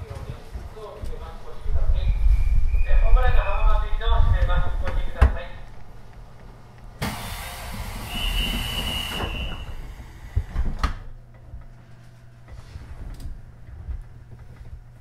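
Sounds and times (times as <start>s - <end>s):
train low hum: 1.3s - 10.4s
air hiss with high tone: 7.0s - 10.2s
train doors shutting thud: 7.0s - 11.0s.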